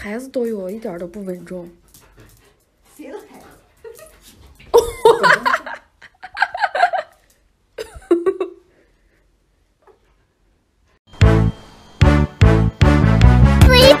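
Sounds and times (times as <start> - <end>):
person laughing: 4.7 - 7.2, 7.8 - 8.7.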